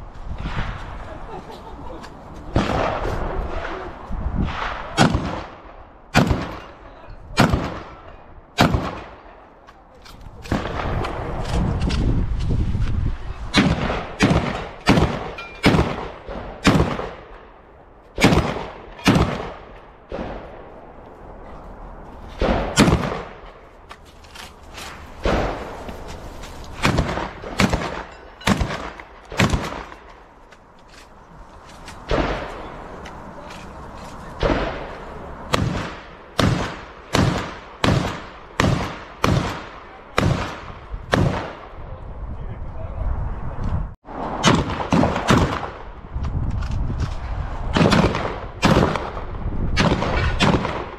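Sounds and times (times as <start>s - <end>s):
low rumbling noise: 0.0s - 50.9s
gunshots with echo: 2.5s - 3.8s, 4.4s - 6.7s, 7.4s - 9.2s, 13.5s - 17.4s, 18.2s - 20.7s, 22.4s - 23.5s, 26.8s - 30.0s, 32.1s - 32.8s, 34.4s - 41.7s, 47.7s - 50.9s.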